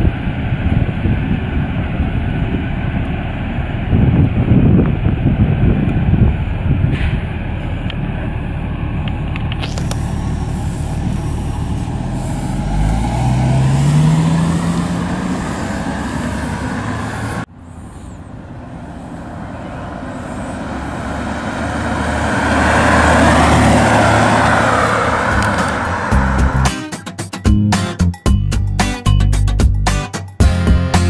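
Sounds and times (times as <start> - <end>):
car engine revving: 7.6 - 27.0
car driving past: 9.8 - 26.7.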